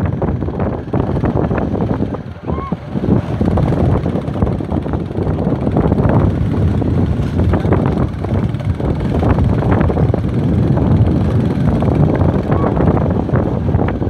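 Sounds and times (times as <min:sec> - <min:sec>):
vehicle engine running: 0:00.0 - 0:14.0
wind buffeting microphone: 0:00.0 - 0:14.0.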